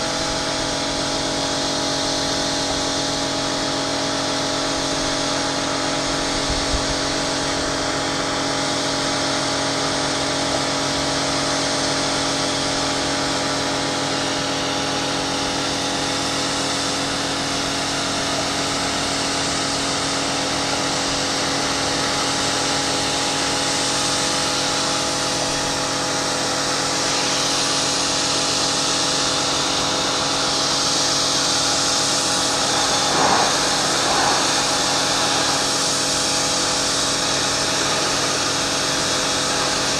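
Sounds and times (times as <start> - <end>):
pressure washer motor hum: 23.0 - 39.9
water jet spraying metal: 23.6 - 39.9.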